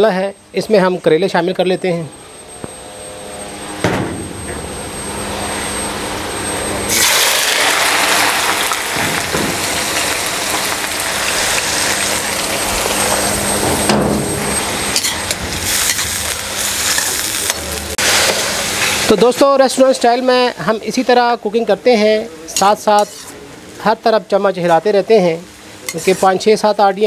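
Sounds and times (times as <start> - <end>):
deep-frying sizzle: 6.9 - 27.0.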